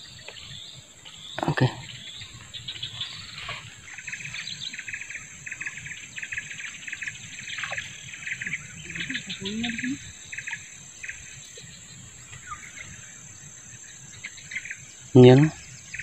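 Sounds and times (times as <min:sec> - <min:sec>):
insects high-pitched drone: 0:00.0 - 0:16.0
rapid chirping bursts: 0:03.6 - 0:16.0.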